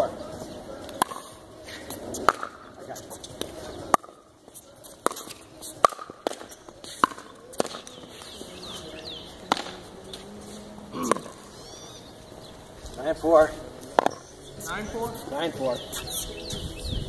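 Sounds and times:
ball bouncing on hard court: 5.0 - 8.0
paddles striking plastic ball: 9.4 - 9.8.

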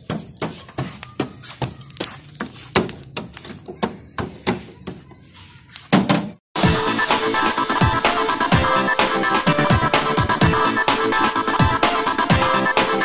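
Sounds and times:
tapping on barbecue coals: 0.0 - 5.1
loud knocks: 5.9 - 6.4.

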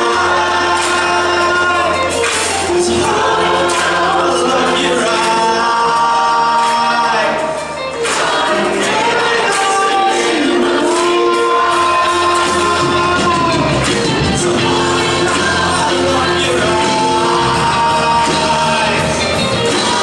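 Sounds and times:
choir singing gospel song: 0.0 - 20.0
hand claps: 0.1 - 15.6.

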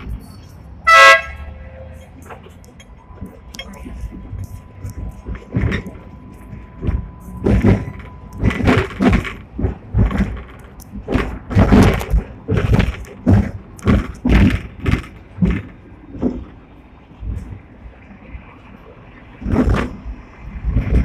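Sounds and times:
tram running rumble: 0.0 - 21.0
tram knocking on rails: 2.8 - 17.7, 19.4 - 21.0.

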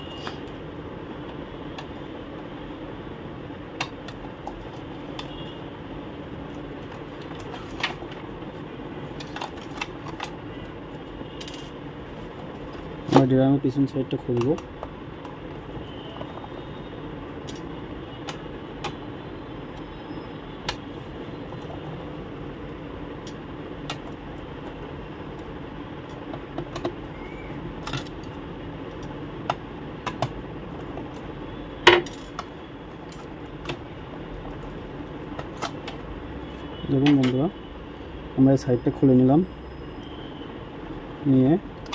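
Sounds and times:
fan hum: 0.0 - 38.8
plastic parts clicking and knocking: 9.1 - 10.4, 26.1 - 27.1, 27.8 - 31.2, 31.8 - 33.9.

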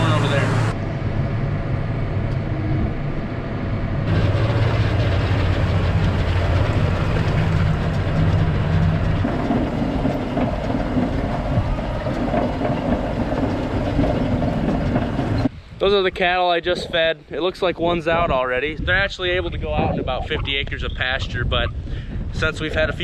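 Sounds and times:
tractor engine running: 0.0 - 0.8, 4.0 - 15.6.

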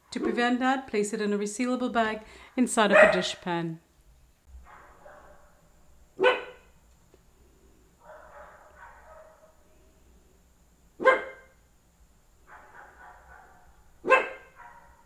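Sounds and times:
small dog barking: 2.9 - 3.4, 4.6 - 5.6, 6.2 - 6.7, 8.0 - 9.6, 11.0 - 11.6, 12.5 - 15.0.

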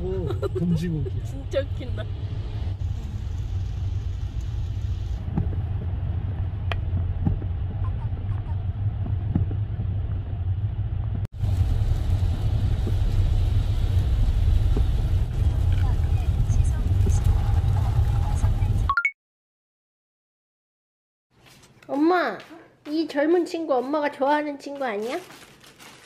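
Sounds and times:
car driving on wet road: 0.0 - 18.9.

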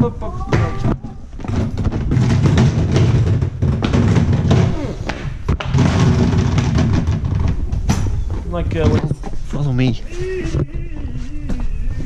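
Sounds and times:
equipment knocks and thuds: 0.5 - 9.1.

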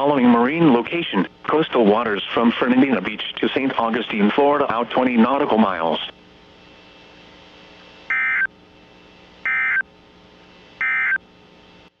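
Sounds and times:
low radio hiss: 0.0 - 12.0
digital data tone bursts: 9.5 - 9.8.

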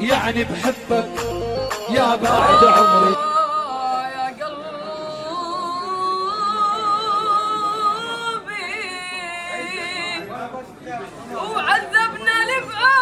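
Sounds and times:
boy singing: 0.0 - 10.0.

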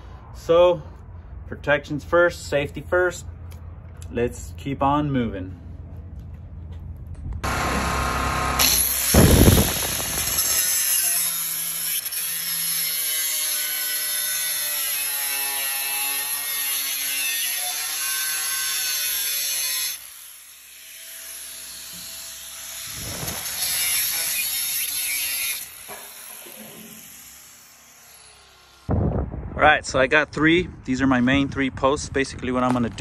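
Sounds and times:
angle grinder cutting metal: 7.4 - 28.9.

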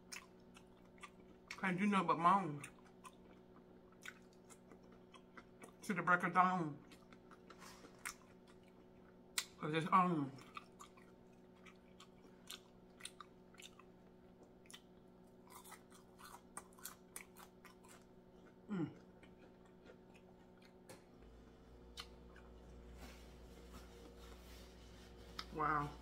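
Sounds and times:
chewing crunchy food: 0.0 - 24.4
person humming mm: 18.7 - 19.0.

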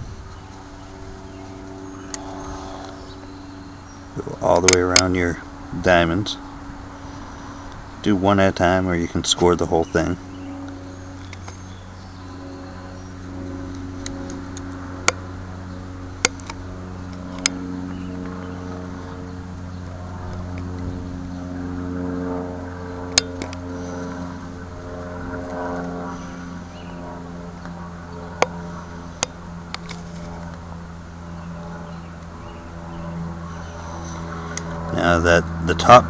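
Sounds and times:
steady low hum: 0.0 - 36.0
sharp clicks: 13.7 - 15.3, 16.2 - 18.4
knife scoring wood ticks: 16.2 - 17.6.

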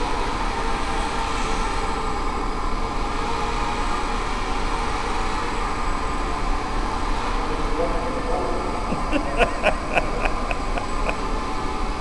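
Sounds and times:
small drone motors whirring: 0.0 - 9.1.

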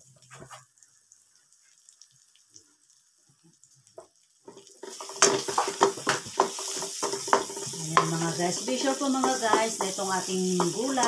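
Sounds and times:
wooden spatula scraping: 4.5 - 11.0
loud sizzling: 4.6 - 11.0.

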